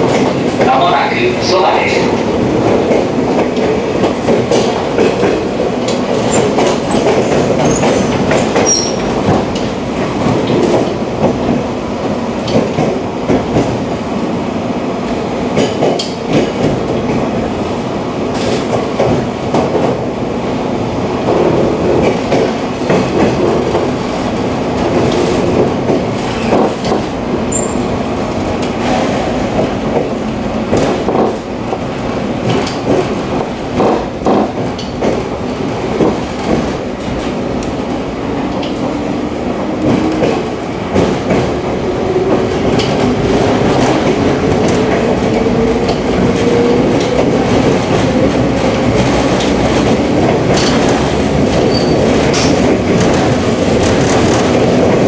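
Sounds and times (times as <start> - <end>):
train wheels rumbling on rails: 0.0 - 55.0
clicks over rail joints: 42.3 - 55.0.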